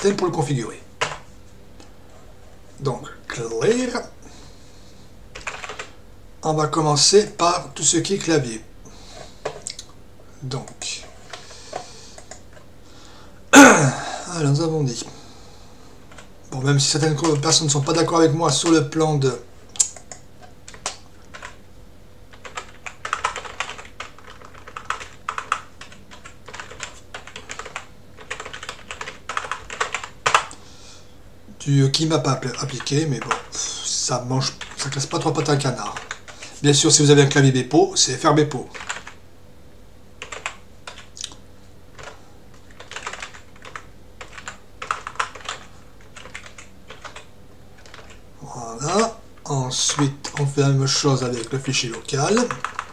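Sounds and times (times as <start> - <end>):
typing on keyboard: 5.4 - 5.9, 19.8 - 21.6, 22.3 - 30.5, 34.6 - 36.4, 38.7 - 39.2, 40.2 - 41.2, 42.0 - 48.2, 51.4 - 52.9.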